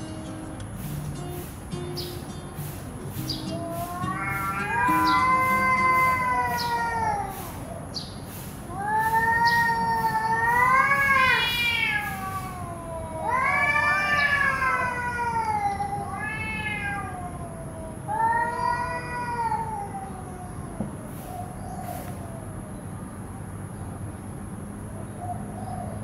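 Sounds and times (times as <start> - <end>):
cat yowling: 3.2 - 7.9, 8.7 - 21.6.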